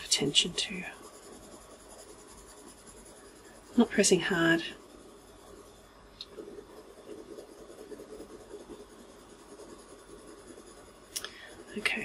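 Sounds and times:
pencil scratching on paper: 0:00.0 - 0:12.0.

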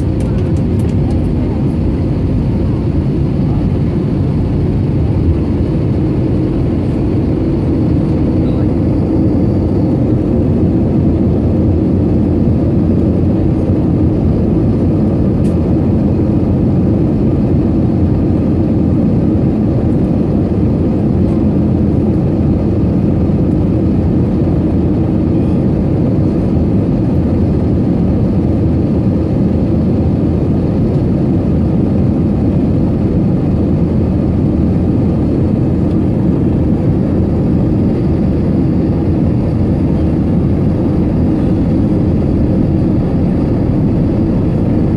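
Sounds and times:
aircraft cabin rumble in flight: 0:00.0 - 0:44.9.

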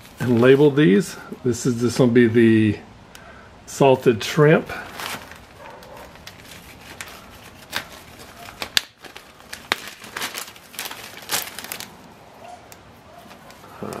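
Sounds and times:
plastic bag crinkling: 0:00.0 - 0:00.8, 0:04.7 - 0:14.0.

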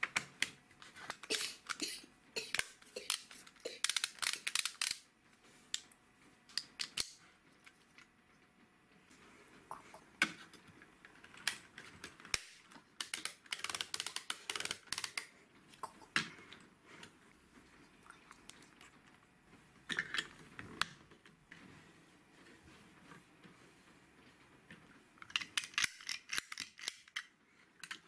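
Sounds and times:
plastic bricks clicking together: 0:02.5 - 0:05.0, 0:12.3 - 0:15.3, 0:25.2 - 0:28.0.

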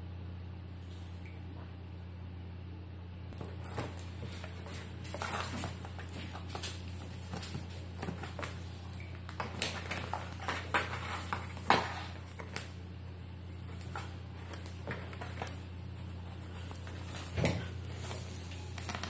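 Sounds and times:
cat scratching cardboard box: 0:03.4 - 0:12.8.

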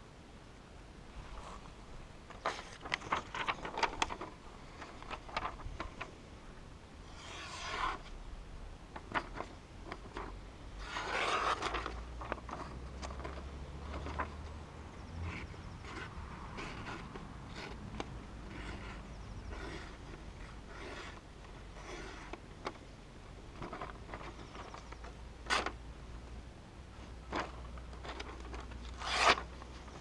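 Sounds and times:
paper crinkling: 0:02.3 - 0:06.1, 0:09.0 - 0:14.4.

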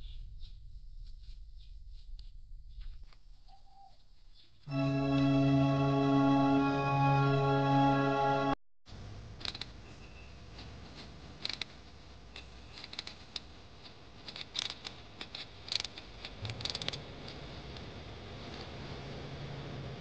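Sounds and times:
small scrapes and clicks: 0:10.6 - 0:17.8.

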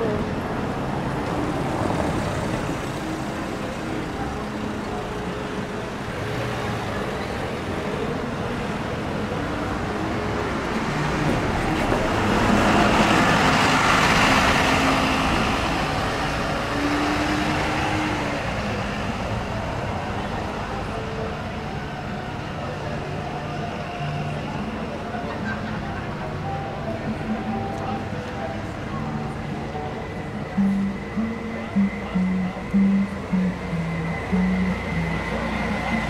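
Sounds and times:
city street traffic: 0:00.0 - 0:36.0.

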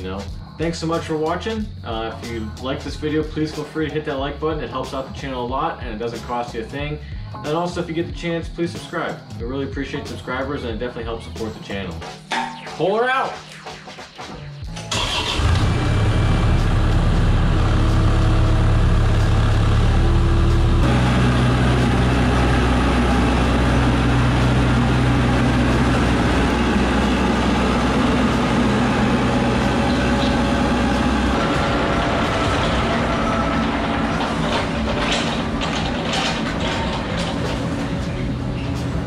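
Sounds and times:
excavator diesel engine running: 0:14.9 - 0:39.0.

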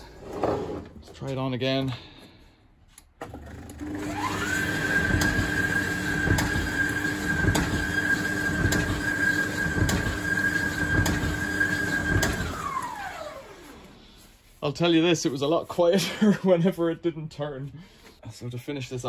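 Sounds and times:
tumble dryer motor whine: 0:03.5 - 0:14.0.

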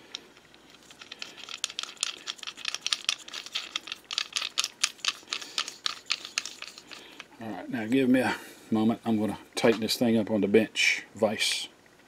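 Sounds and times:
bolt clicking and rattling: 0:00.3 - 0:07.3.

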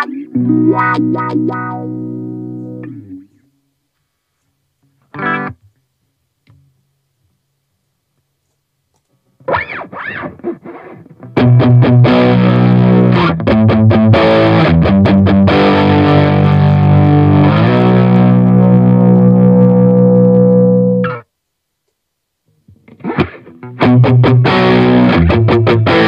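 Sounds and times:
distorted electric guitar: 0:00.0 - 0:03.4, 0:05.0 - 0:05.7, 0:09.4 - 0:21.3, 0:22.7 - 0:26.0.

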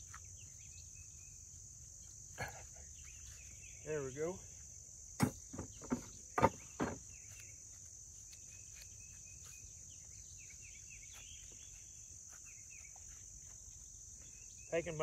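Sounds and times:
insects chorus: 0:00.0 - 0:15.0
sharp knocks: 0:05.2 - 0:07.0.

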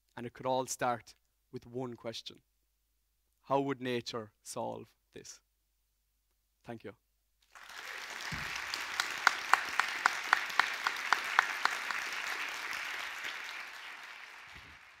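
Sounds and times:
audience applauding: 0:07.5 - 0:15.0.

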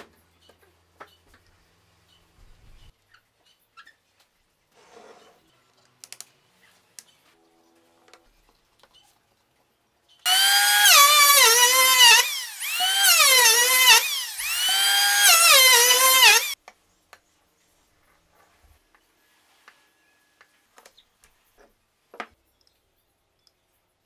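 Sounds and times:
electric hand planer cutting wood: 0:10.3 - 0:16.6.

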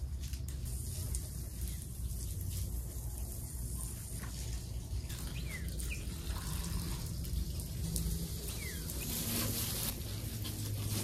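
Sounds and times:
garden hose spraying water: 0:00.0 - 0:11.0
bird chirps: 0:05.1 - 0:06.5, 0:08.4 - 0:09.4.

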